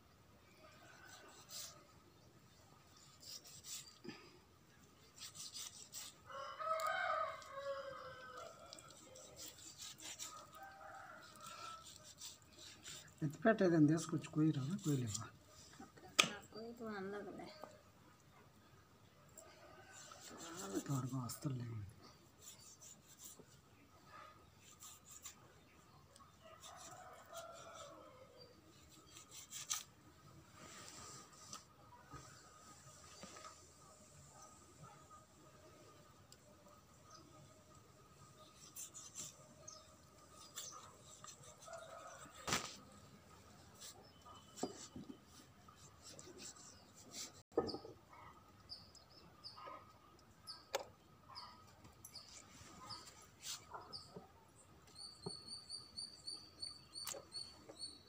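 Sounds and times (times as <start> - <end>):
knife scraping meat off bone: 3.0 - 4.0, 5.1 - 7.6, 8.4 - 13.2, 19.9 - 21.1, 24.6 - 25.4, 26.6 - 28.0, 28.7 - 29.9, 38.5 - 42.7
knife cutting chicken: 5.2 - 7.4, 40.4 - 42.7
rooster crowing: 6.3 - 9.2, 26.5 - 28.5.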